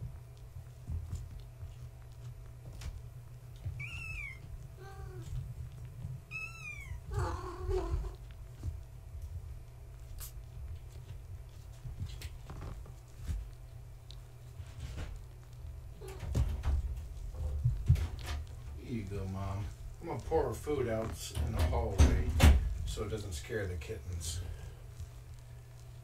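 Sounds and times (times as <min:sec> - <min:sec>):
steady low hum: 0:00.0 - 0:26.0
kittens meowing: 0:03.6 - 0:05.4, 0:06.3 - 0:08.2.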